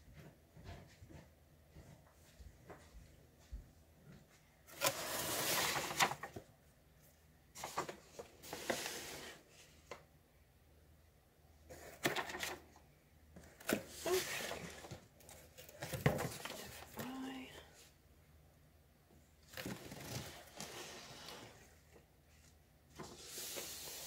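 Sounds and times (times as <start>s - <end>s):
cardboard rustling and scraping: 4.7s - 6.4s, 7.6s - 10.0s, 13.4s - 17.3s, 19.4s - 24.0s.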